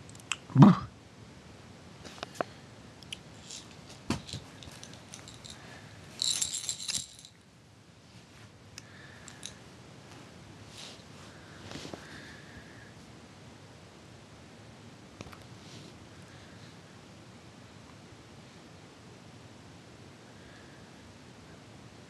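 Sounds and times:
light clicks and rustles: 0:03.1 - 0:05.6.

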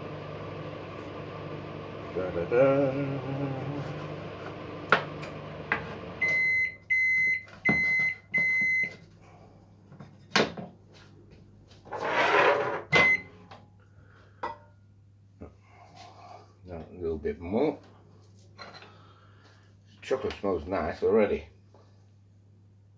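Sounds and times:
microwave oven humming: 0:00.0 - 0:08.9
microwave beeps: 0:06.2 - 0:09.0, 0:12.9 - 0:13.4.

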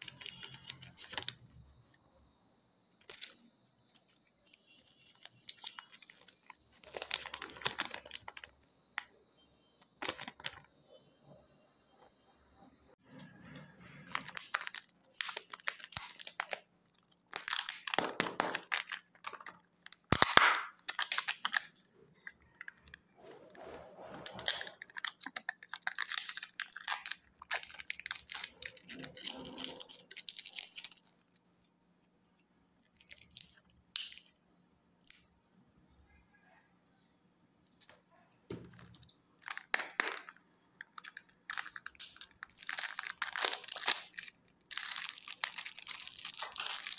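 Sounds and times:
foil wrappers crinkling: 0:03.0 - 0:08.6, 0:14.0 - 0:22.7, 0:24.2 - 0:31.4, 0:38.7 - 0:46.9.

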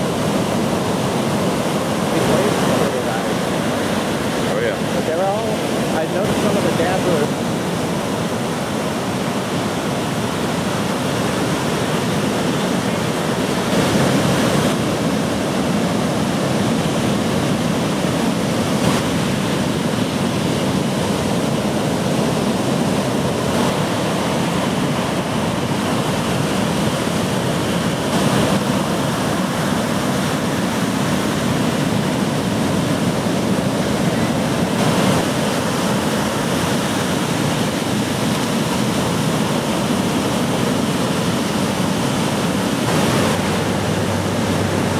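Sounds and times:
waves breaking: 0:00.0 - 0:44.9.

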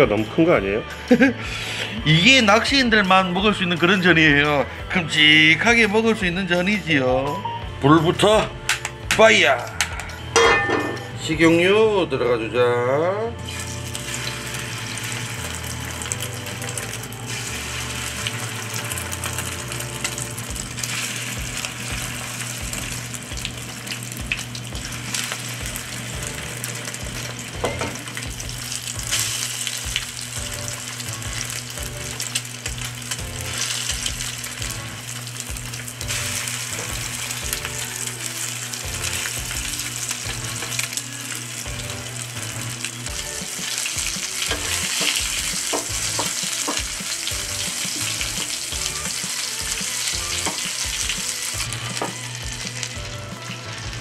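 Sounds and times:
fish frying in hot oil: 0:13.5 - 0:54.0.

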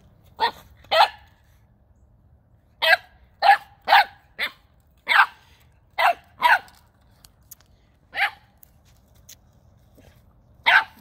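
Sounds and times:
puppy barking: 0:00.4 - 0:01.3, 0:02.8 - 0:06.8, 0:08.1 - 0:08.4, 0:10.6 - 0:11.0.

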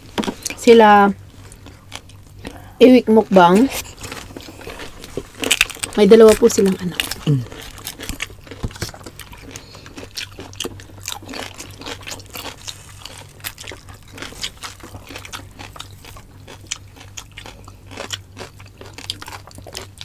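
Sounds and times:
low steady hum: 0:00.0 - 0:20.0
crunching and chewing: 0:01.2 - 0:02.7, 0:03.5 - 0:20.0.

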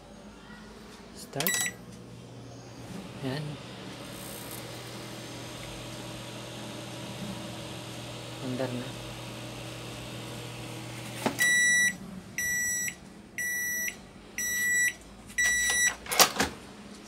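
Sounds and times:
microwave oven humming: 0:01.3 - 0:16.9
microwave beeps: 0:01.4 - 0:01.8, 0:11.4 - 0:16.0.

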